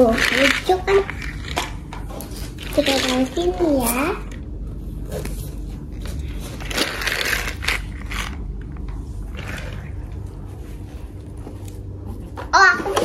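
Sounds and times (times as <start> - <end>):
toy trucks scraping and clacking: 0.0 - 4.0, 6.6 - 8.4.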